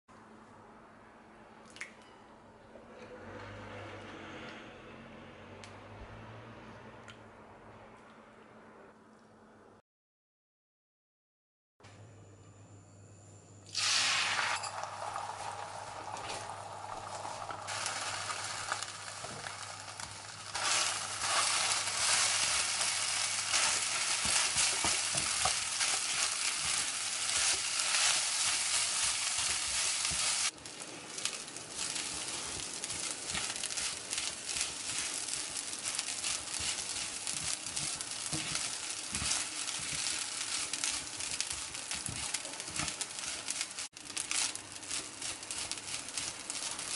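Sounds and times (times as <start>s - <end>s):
eggs and rice sizzling in oil: 13.7s - 46.9s
spatula clicking and scraping: 20.0s - 46.9s.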